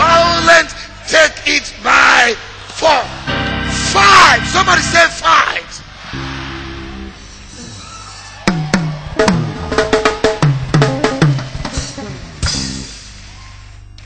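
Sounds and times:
low held chord: 0:03.1 - 0:05.3
drum fill on toms: 0:08.4 - 0:12.9.

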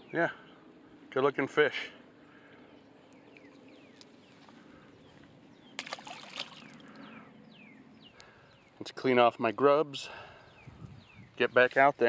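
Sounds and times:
birds chirping: 0:00.0 - 0:12.0
fish splashing into water: 0:05.8 - 0:06.9.

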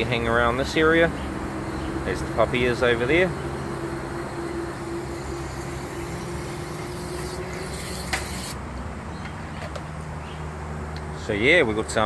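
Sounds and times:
low steady hum: 0:00.0 - 0:08.5
misting nozzles spraying hiss: 0:00.0 - 0:08.6.

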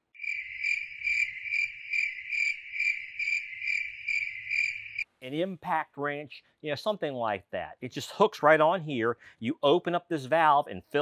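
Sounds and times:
cricket chirp trill: 0:00.1 - 0:05.1.

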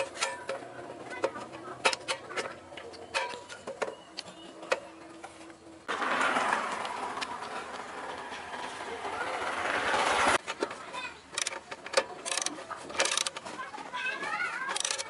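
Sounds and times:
metal parts clinking: 0:14.7 - 0:15.0.

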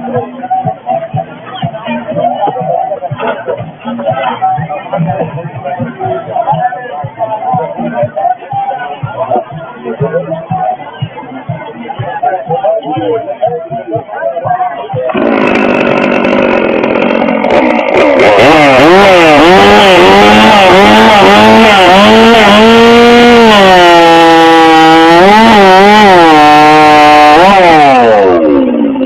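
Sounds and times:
chainsaw cutting through a log: 0:15.1 - 0:29.0.

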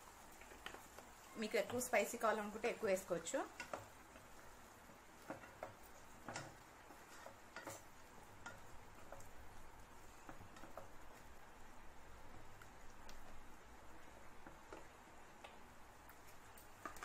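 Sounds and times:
spatula scraping a pot: 0:05.2 - 0:09.2.

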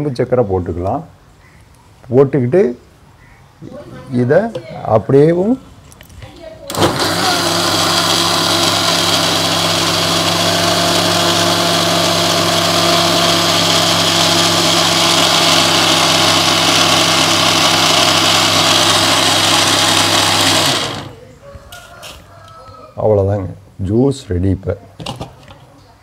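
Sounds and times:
mixer grinder running: 0:06.7 - 0:21.2.

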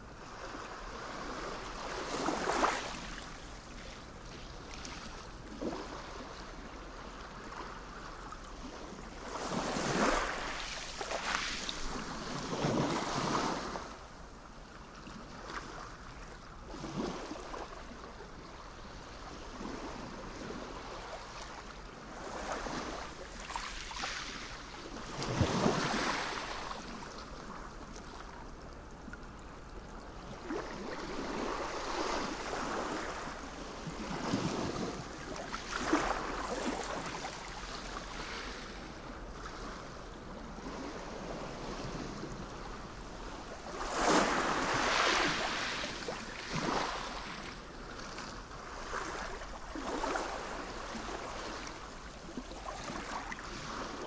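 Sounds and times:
sea waves breaking: 0:00.4 - 0:06.3, 0:22.0 - 0:27.0, 0:30.3 - 0:54.0.

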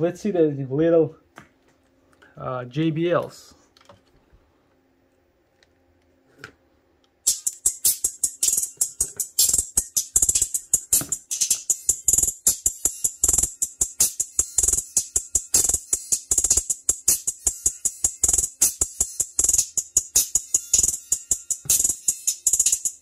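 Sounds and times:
music with percussive beat: 0:07.2 - 0:23.0.

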